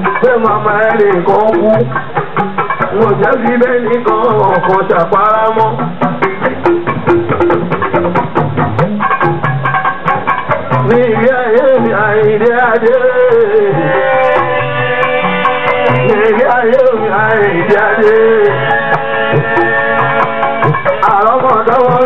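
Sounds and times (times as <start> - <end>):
hand drums and percussion: 0.0 - 22.0
person singing ornamented vocals: 2.9 - 5.8, 10.7 - 22.0.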